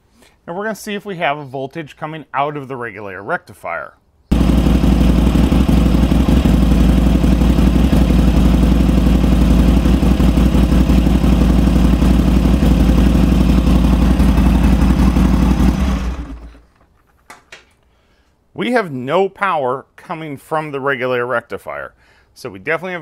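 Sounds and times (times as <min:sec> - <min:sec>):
motorcycle engine idling: 0:04.3 - 0:16.6.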